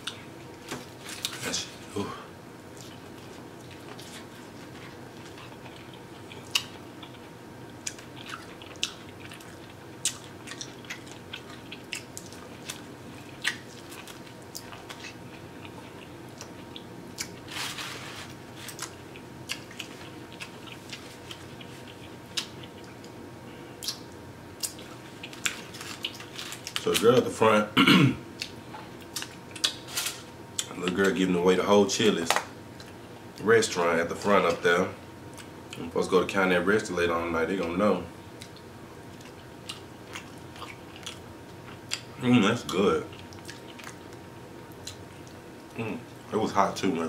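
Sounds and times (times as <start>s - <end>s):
wet chewing: 2.7s - 17.8s, 18.6s - 23.1s, 38.4s - 42.1s, 42.7s - 45.4s.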